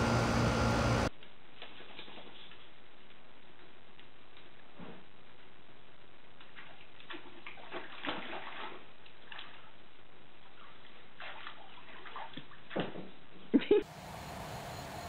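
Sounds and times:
water sloshing and splashing: 6.4 - 13.3
steady background hiss: 13.6 - 15.0.

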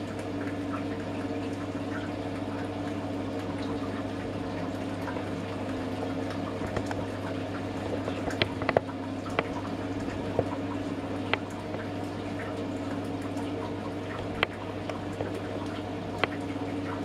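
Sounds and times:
constant low hum: 0.0 - 17.0
liquid boiling in a still: 0.0 - 17.0.

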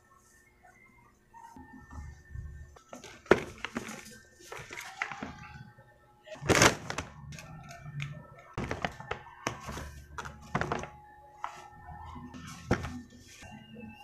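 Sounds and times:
paper bag crinkling: 6.4 - 7.6, 8.6 - 11.0.

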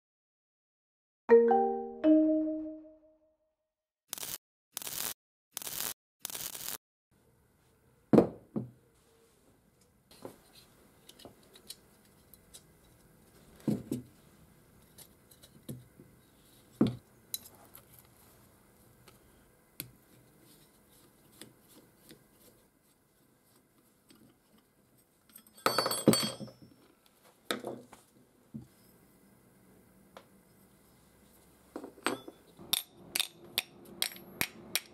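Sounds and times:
knocks on wooden workbench: 8.2 - 8.7.

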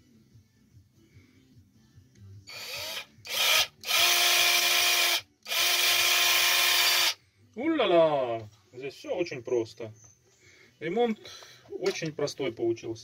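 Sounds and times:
electric motor whirring: 2.5 - 7.2.

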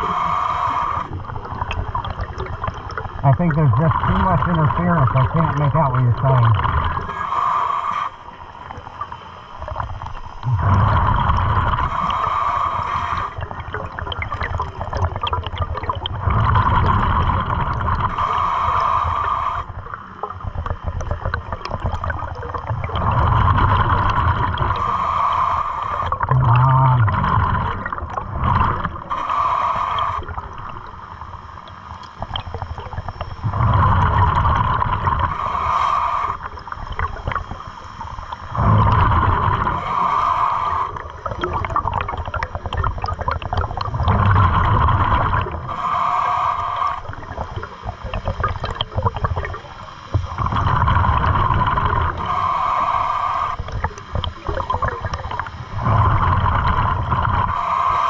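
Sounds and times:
diver breathing through regulator: 0.0 - 1.3, 4.0 - 8.5, 10.5 - 13.6, 16.2 - 19.9, 22.8 - 30.6, 33.4 - 36.8, 37.6 - 41.4, 44.0 - 47.8, 50.2 - 54.3, 55.6 - 58.0
bubbles gurgling underwater: 1.1 - 7.1, 8.6 - 12.3, 13.2 - 18.2, 19.8 - 24.9, 26.0 - 29.2, 32.0 - 35.4, 36.4 - 40.0, 40.8 - 45.8, 47.0 - 52.2, 53.6 - 57.6.

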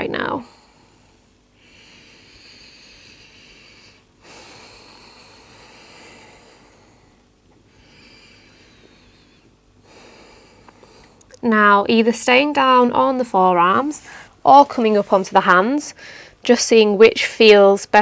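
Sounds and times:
woman breathing deeply: 0.4 - 11.3, 13.9 - 14.4, 15.9 - 16.4.

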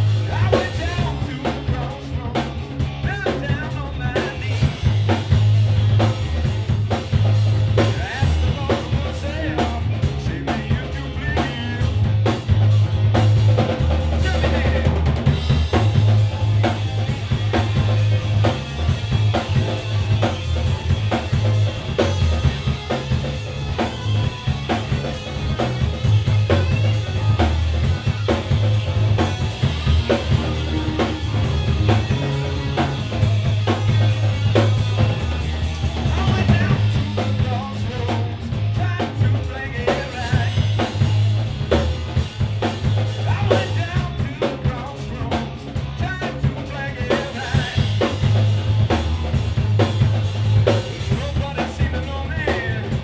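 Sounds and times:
bass guitar line: 0.0 - 53.0
drum kit beat: 0.0 - 53.0
live blues band playing: 0.0 - 53.0.

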